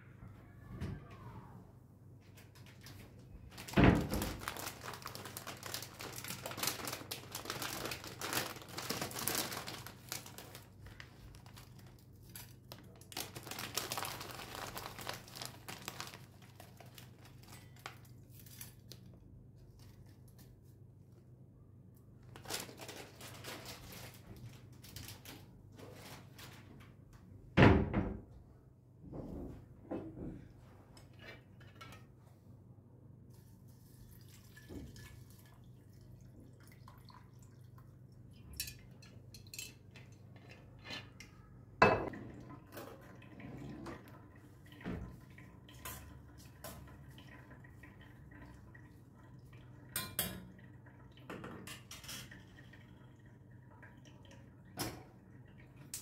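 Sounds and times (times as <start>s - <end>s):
plastic bag crinkling: 3.4s - 19.0s, 22.3s - 26.6s.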